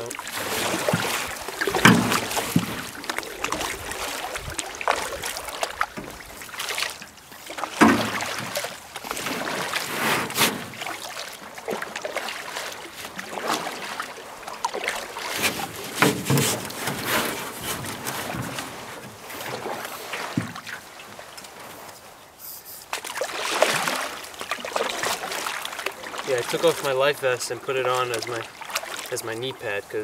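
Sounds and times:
water dripping and trickling: 0.0s - 9.8s
paddle splashing in water: 0.0s - 29.9s.

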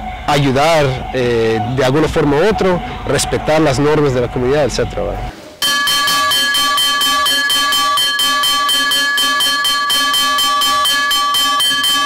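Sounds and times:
metal bell ringing rapidly: 5.6s - 12.0s.

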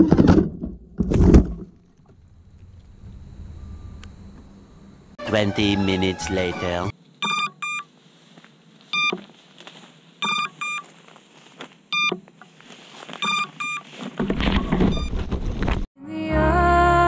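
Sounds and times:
short high motor beeps: 3.3s - 7.9s, 10.2s - 10.8s
rustling in tall grass: 7.9s - 14.6s.

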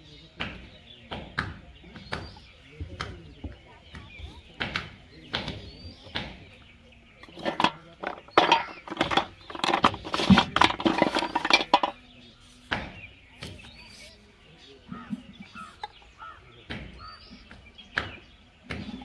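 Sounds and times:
plastic pipe fittings clattering: 7.2s - 12.0s.

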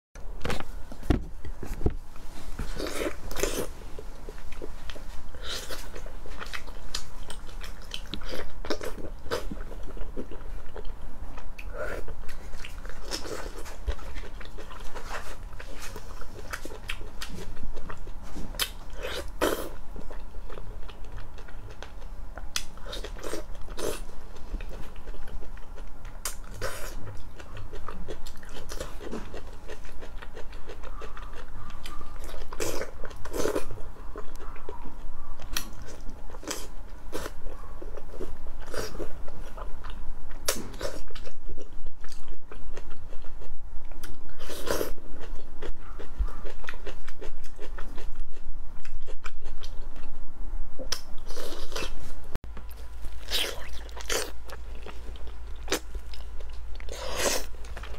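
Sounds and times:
chewing: 2.6s - 50.2s, 50.9s - 57.9s
crisp crackles: 51.7s - 57.9s.

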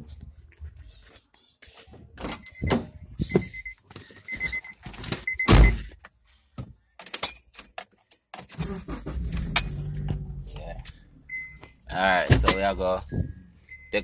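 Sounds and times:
keys jangling: 7.0s - 11.0s
car engine starting and idling: 8.6s - 14.0s
car warning chime beeping: 11.0s - 14.0s.

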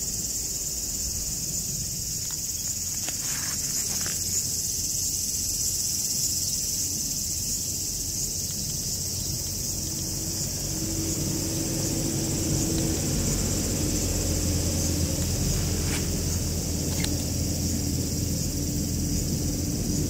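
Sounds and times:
insects chorus: 0.0s - 20.0s
low rumble: 8.8s - 20.0s.

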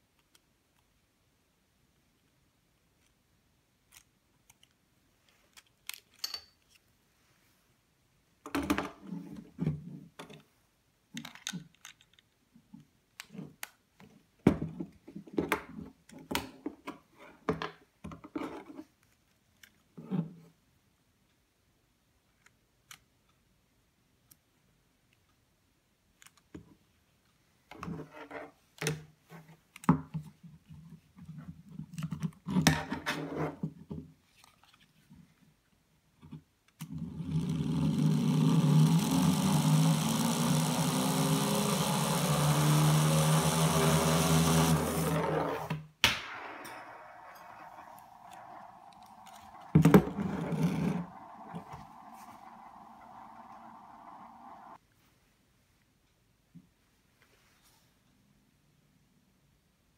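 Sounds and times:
plastic parts clicking and rattling: 3.8s - 6.9s, 11.1s - 13.7s.

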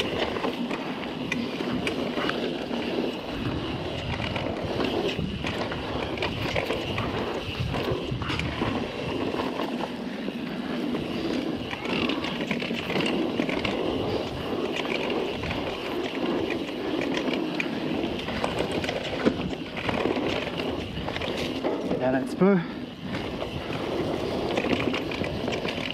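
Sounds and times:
bike rattling and clicking: 0.0s - 25.9s
tyres rushing on dirt: 0.0s - 25.9s
wind past microphone: 1.2s - 9.8s.

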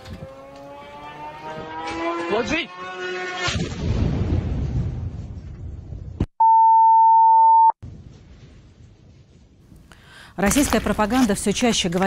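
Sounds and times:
high-pitched censor bleep: 6.4s - 7.8s.

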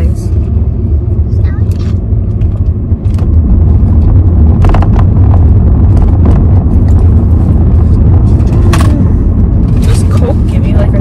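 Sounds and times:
car cabin rumble: 0.0s - 11.0s.

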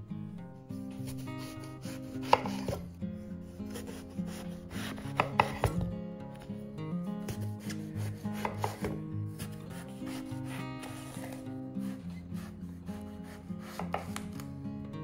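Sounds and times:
soft background music: 0.0s - 15.0s
knife cuts on cutting board: 0.9s - 2.8s, 3.6s - 5.9s, 7.2s - 12.6s, 13.2s - 14.4s
rubbing on cutting board: 9.4s - 12.6s, 13.2s - 14.1s.

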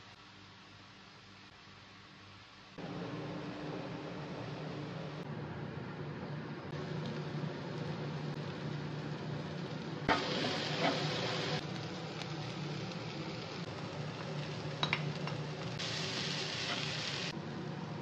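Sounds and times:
steady low hum: 2.8s - 15.9s
food sizzling in a pan: 6.7s - 17.4s.

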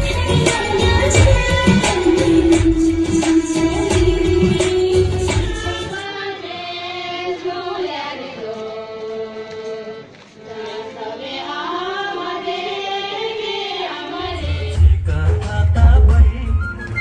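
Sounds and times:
music with low drumbeat: 0.0s - 5.9s, 14.3s - 17.0s
voices singing slow melody: 0.0s - 17.0s.

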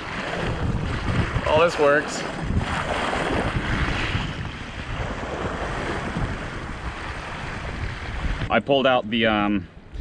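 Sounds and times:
wind buffeting microphone: 0.0s - 8.6s
water rushing and splashing: 0.0s - 9.5s.

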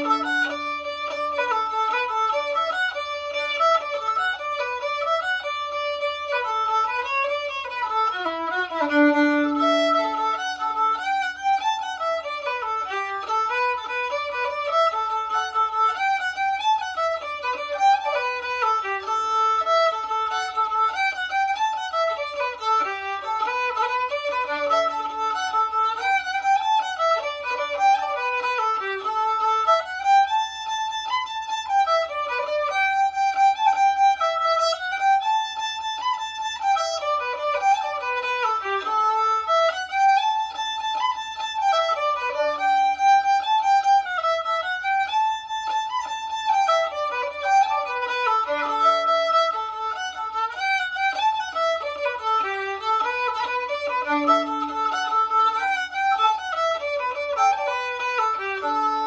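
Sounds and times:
solo fiddle playing folk tune: 0.0s - 59.0s.

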